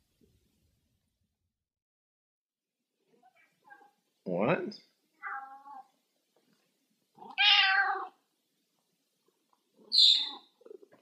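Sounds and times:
cat meowing: 5.2 - 5.9, 7.2 - 8.2, 9.9 - 10.5.

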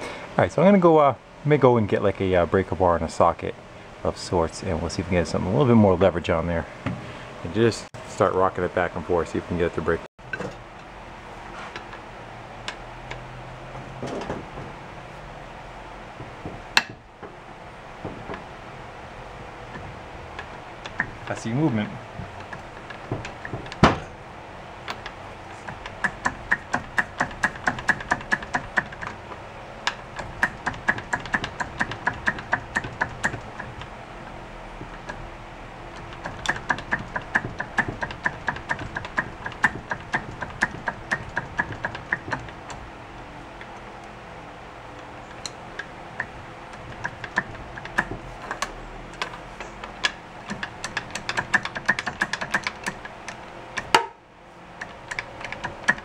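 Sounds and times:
loud knock: 23.1 - 24.1
socket ratchet clicking: 24.8 - 29.2, 29.9 - 33.9, 35.9 - 42.8, 45.0 - 54.1, 54.8 - 56.0.

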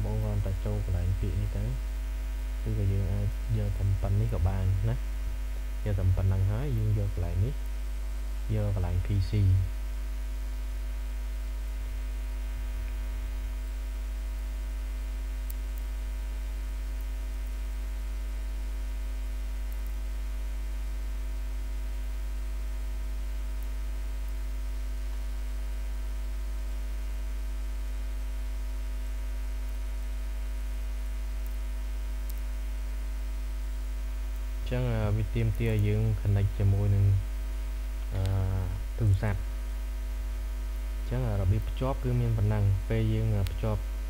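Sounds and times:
electrical mains hum: 0.0 - 44.0
faint ticks: 14.6 - 17.9, 18.9 - 21.0, 23.4 - 25.3, 31.0 - 32.5.

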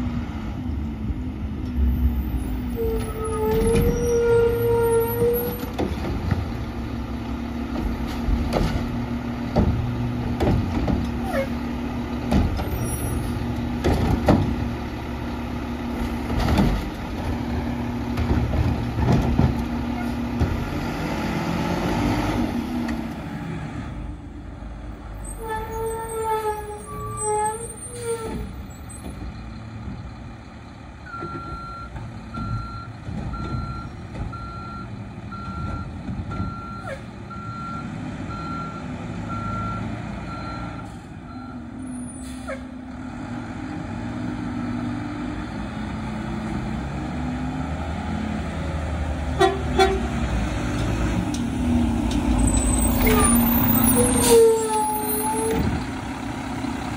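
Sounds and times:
garbage truck engine running: 28.4 - 56.9.

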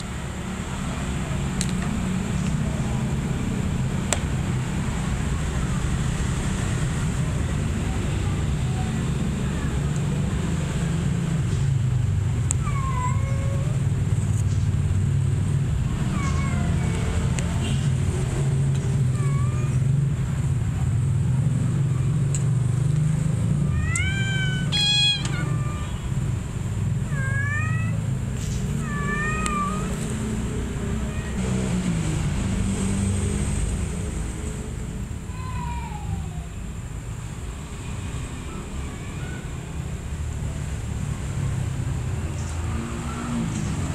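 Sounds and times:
kitten mewing: 23.7 - 26.3, 27.0 - 30.0, 31.0 - 31.4, 35.3 - 36.6.

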